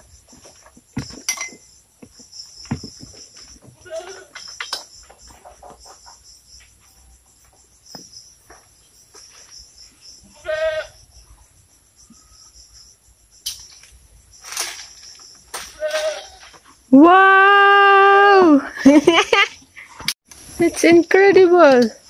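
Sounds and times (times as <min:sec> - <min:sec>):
insect chirring: 0:00.0 - 0:17.1, 0:18.6 - 0:22.0
leaves rustling: 0:13.6 - 0:16.9.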